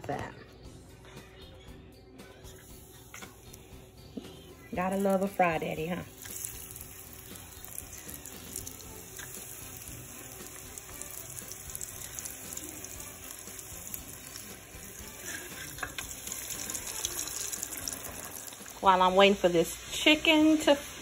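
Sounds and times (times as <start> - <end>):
oil sizzling in deep fryer: 4.8 - 21.0.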